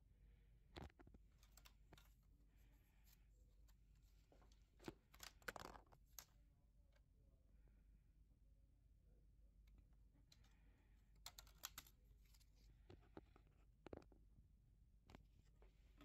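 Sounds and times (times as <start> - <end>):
faint handling clicks and rustles: 0.8 - 6.4.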